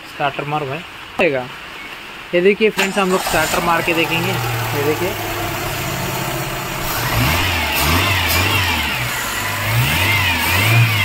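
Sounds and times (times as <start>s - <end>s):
car engine revving: 2.8s - 11.0s.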